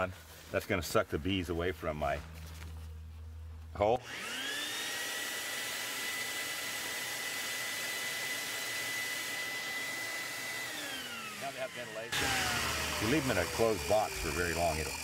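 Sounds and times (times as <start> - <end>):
vacuum motor whining: 4.0 - 15.0.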